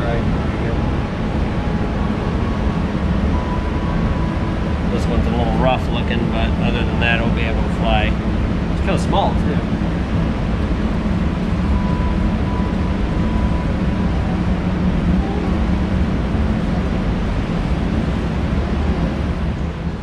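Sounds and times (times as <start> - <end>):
loud rumbling: 0.0 - 20.0
low hum: 0.0 - 20.0.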